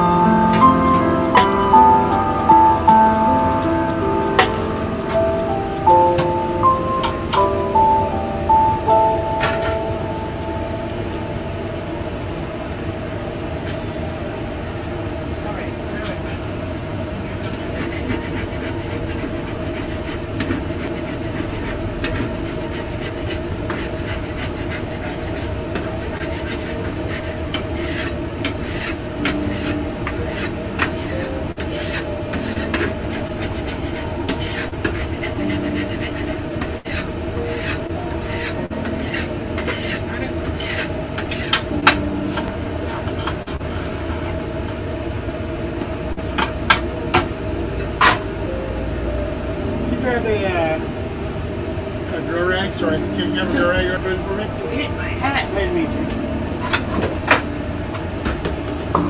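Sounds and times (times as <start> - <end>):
exhaust hood fan drone: 0.0 - 59.0
metal utensil scraping cooktop: 17.5 - 41.6.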